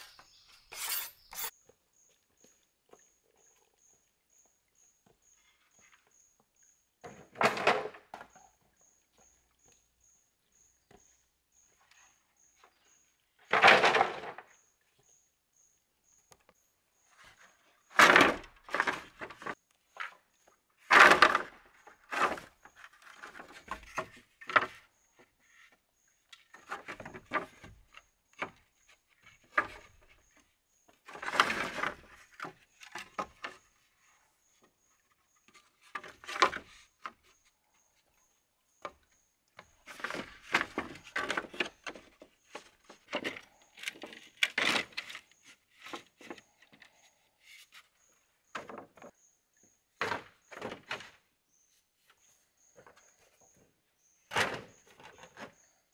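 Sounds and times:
bamboo poles clattering on wood: 7.0 - 9.8, 13.4 - 14.6, 17.2 - 37.9, 38.7 - 49.2, 49.9 - 51.3, 54.3 - 55.7.

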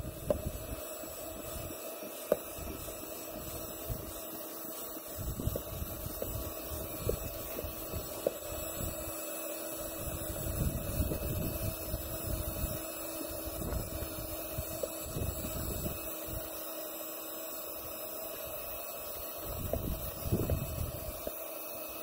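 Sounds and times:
faint steady hum: 0.0 - 22.0
hand pump strokes: 0.0 - 22.0
wind buffeting microphone: 10.0 - 12.8, 19.4 - 21.0.

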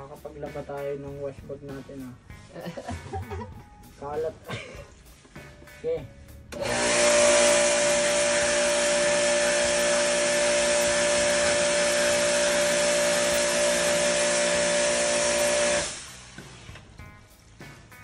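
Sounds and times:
pressure washer motor whine: 6.5 - 16.9
water jet hissing: 6.6 - 18.0.

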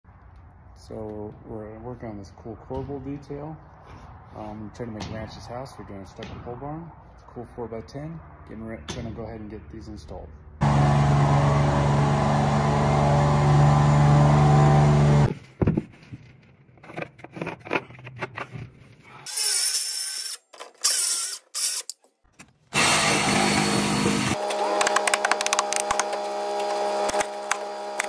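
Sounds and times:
electric lift motor humming: 10.6 - 15.3, 22.8 - 28.0
high-pitched tool noise: 19.3 - 21.9, 22.8 - 28.0
reciprocating saw cutting wood: 22.7 - 28.0.

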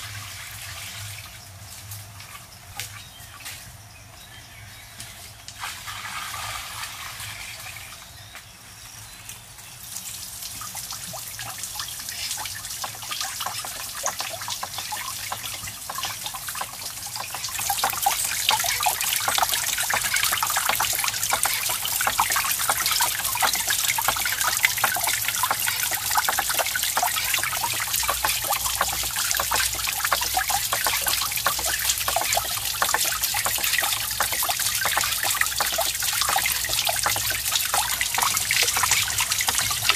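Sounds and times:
water splashing on waterwheel: 10.0 - 39.9.

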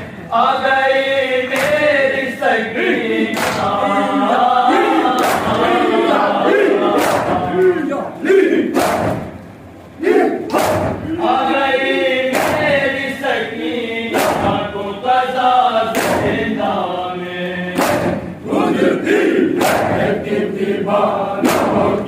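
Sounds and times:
men chanting together: 0.0 - 9.4, 10.0 - 22.0
crowd chest-beating slaps: 1.5 - 2.0, 3.3 - 3.8, 4.8 - 5.7, 6.5 - 7.8, 8.4 - 9.5, 10.1 - 11.2, 12.2 - 13.0, 14.1 - 14.7, 15.9 - 16.6, 17.7 - 18.9, 19.5 - 20.7, 21.4 - 22.0.

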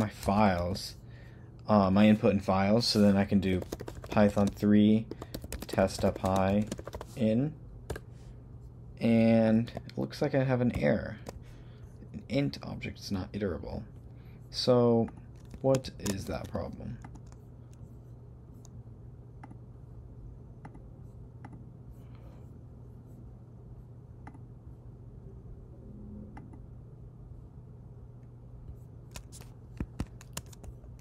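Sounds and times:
low room hum: 0.0 - 31.0
keyboard and mouse clicks: 3.5 - 7.2, 15.0 - 17.4, 29.1 - 31.0.

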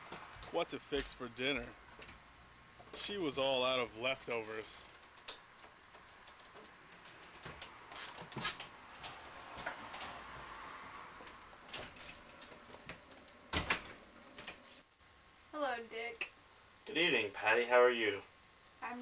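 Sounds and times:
small knocks and shuffling: 4.7 - 14.8.

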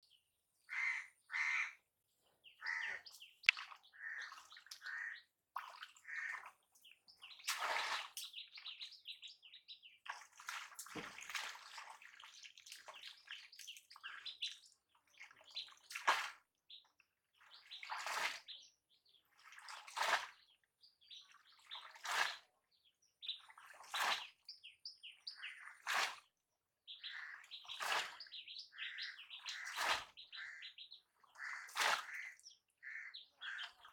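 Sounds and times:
birds chirping: 2.4 - 5.2, 26.9 - 33.9.

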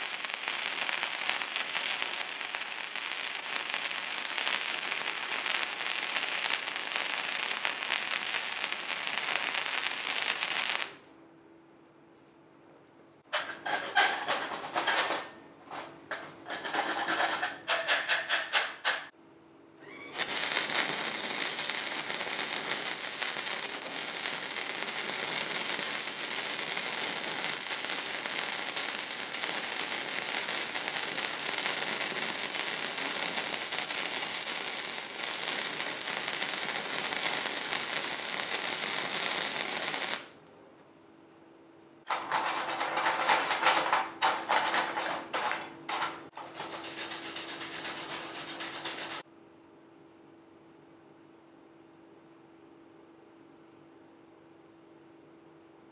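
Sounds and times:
welding arc crackle: 0.0 - 11.1, 20.0 - 40.4, 42.1 - 49.3
wire brush scrubbing metal: 42.1 - 49.2.

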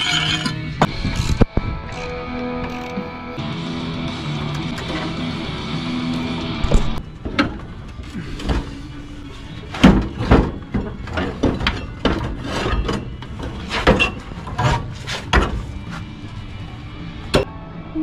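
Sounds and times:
metal clunks and scrapes: 4.4 - 5.3, 6.6 - 16.1.

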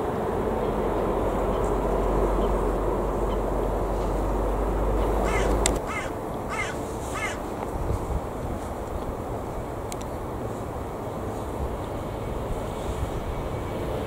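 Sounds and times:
jet airliner rumble: 0.0 - 14.0
crow cawing: 5.2 - 7.4.

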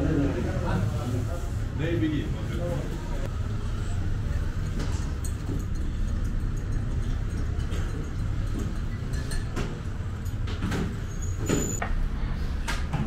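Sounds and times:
clinks and knocks: 4.7 - 11.8.

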